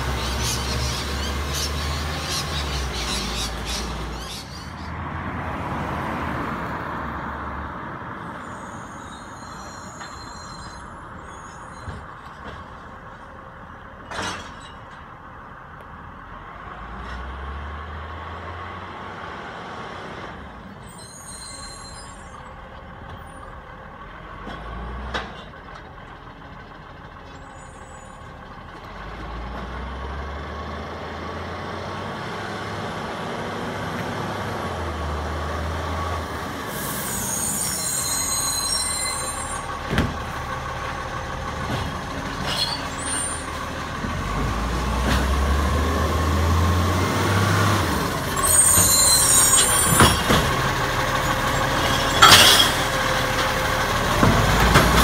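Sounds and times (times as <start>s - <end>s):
truck diesel engine revving: 0.0s - 4.7s, 28.9s - 38.0s, 39.3s - 55.0s
air brakes hissing: 8.3s - 11.9s, 36.6s - 39.7s.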